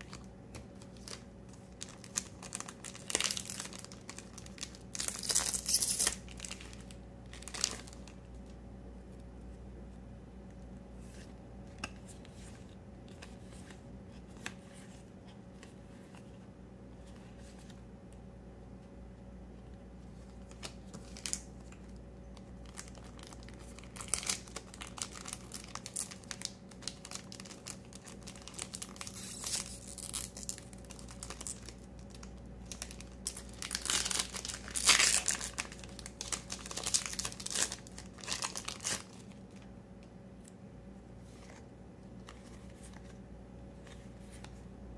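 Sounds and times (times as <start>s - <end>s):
foil wrapper crinkling and tearing: 0.0s - 8.2s, 20.4s - 39.7s.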